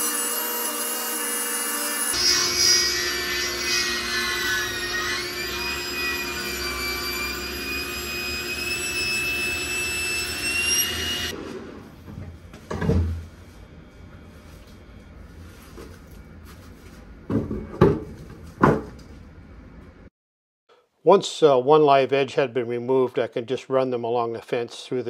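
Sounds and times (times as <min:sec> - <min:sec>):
table saw cutting wood: 0:00.0 - 0:11.8.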